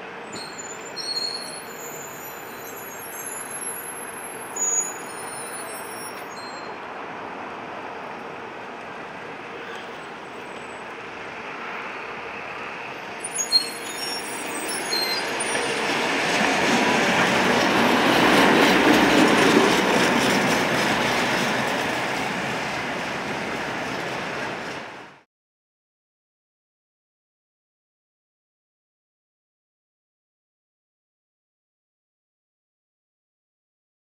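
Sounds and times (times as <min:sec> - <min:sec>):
tram wheels squealing: 0:00.0 - 0:07.0, 0:09.3 - 0:25.1
tram running rumble: 0:00.0 - 0:25.2.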